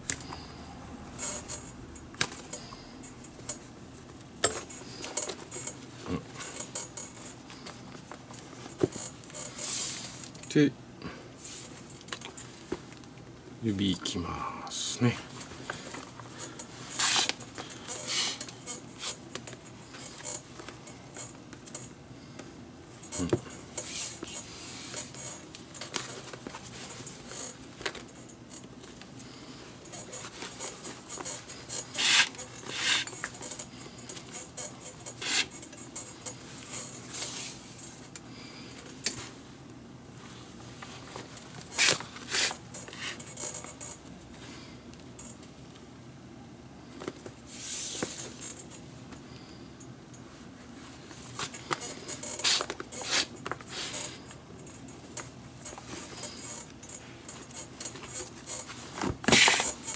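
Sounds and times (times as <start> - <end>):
handling rustles: 15.0 - 22.0, 22.9 - 45.6, 46.9 - 49.5, 50.1 - 59.9
leather lace scraping: 16.4 - 19.2, 30.0 - 35.7, 41.6 - 43.6, 51.4 - 54.2, 57.4 - 59.9.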